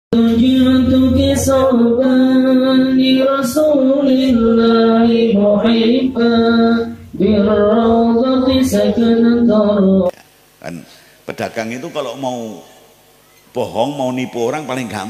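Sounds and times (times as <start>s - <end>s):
voice singing long notes: 0.1s - 10.1s.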